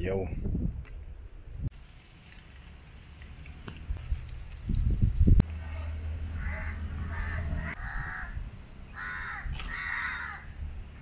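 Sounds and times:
crow cawing: 6.3s - 10.5s.

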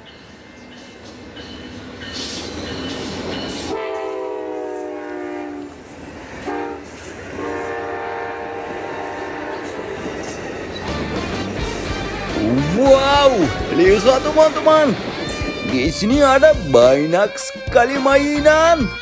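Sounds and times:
electronic train horn blasts: 3.5s - 5.8s, 6.4s - 19.0s
toy train hissing rush: 11.6s - 18.2s.

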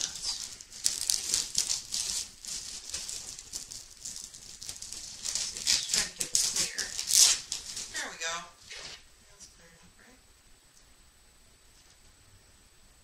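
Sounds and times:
packaging rustling and crinkling: 0.0s - 9.1s.

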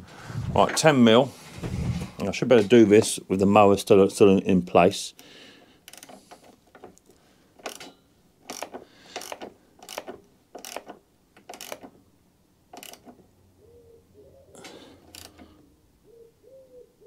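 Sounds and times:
ratchet spanner clicking: 5.9s - 6.9s, 7.6s - 11.9s, 12.7s - 13.2s, 15.0s - 15.5s.

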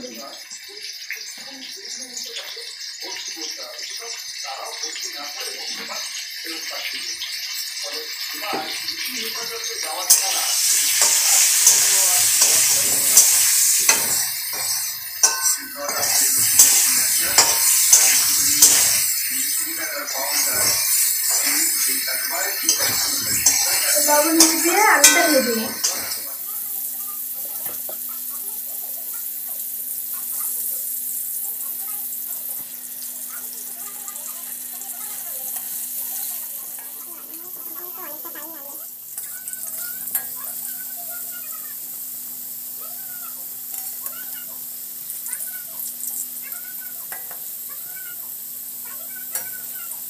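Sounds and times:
potatoes sizzling in hot oil: 0.0s - 50.0s
spatula clinking against pan: 9.8s - 26.3s, 47.1s - 47.5s
metal spatula scraping pan: 10.1s - 26.3s.

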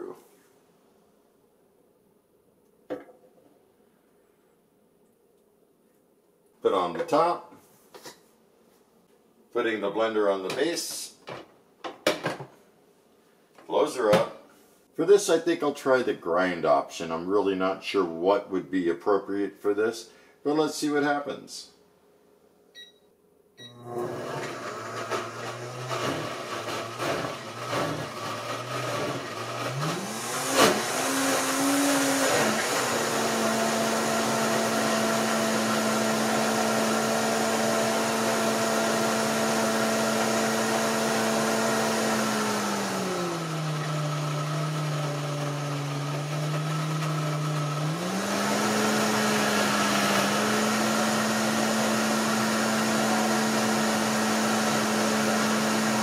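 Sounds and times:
blender motor running: 23.6s - 56.0s.

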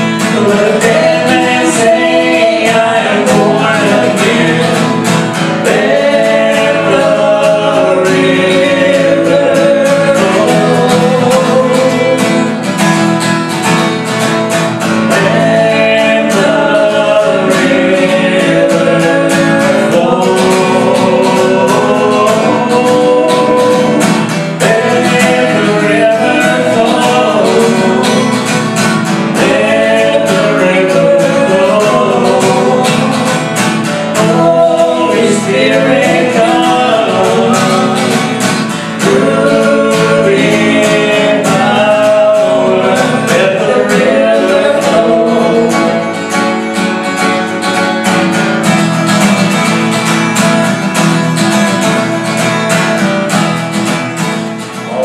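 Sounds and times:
man and woman singing: 0.0s - 13.2s, 14.8s - 47.7s, 54.7s - 55.0s
strummed acoustic guitar: 0.0s - 55.0s.

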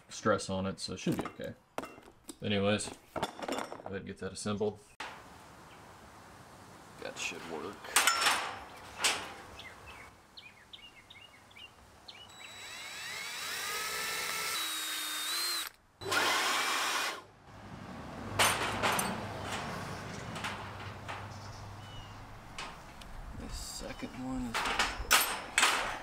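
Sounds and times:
tools clattering on metal: 1.0s - 3.9s, 7.9s - 9.5s, 18.3s - 23.0s, 24.2s - 26.0s
cordless drill whining: 12.3s - 17.2s.

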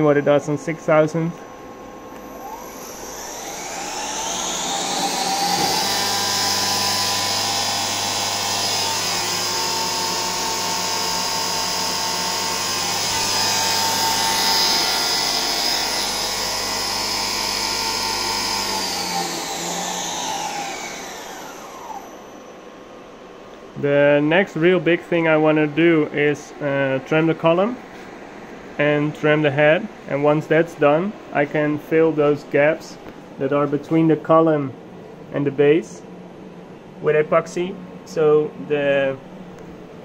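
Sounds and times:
mill spindle whine: 0.0s - 30.1s.

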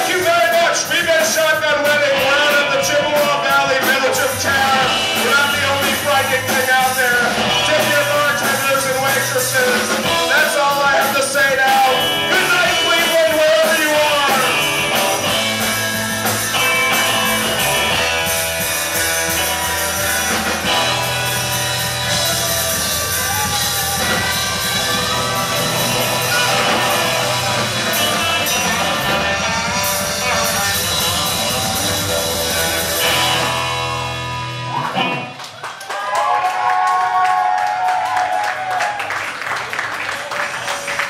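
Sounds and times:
live rock band playing: 0.0s - 35.7s
saxophone: 14.3s - 35.3s.

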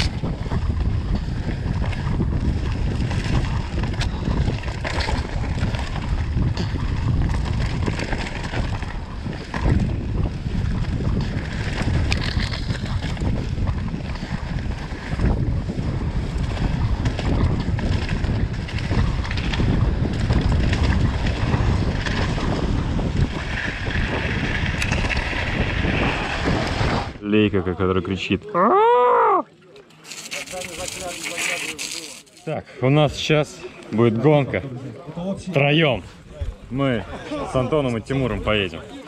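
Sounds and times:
bike knocking and rattling: 0.0s - 27.0s, 29.8s - 32.4s
wind buffeting microphone: 0.0s - 27.2s, 35.3s - 39.0s.

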